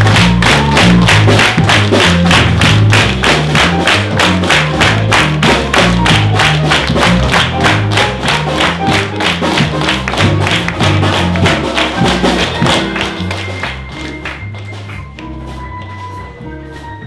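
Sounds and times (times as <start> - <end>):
tap-dance steps: 0.0 - 16.4
small jazz band playing: 0.0 - 17.0.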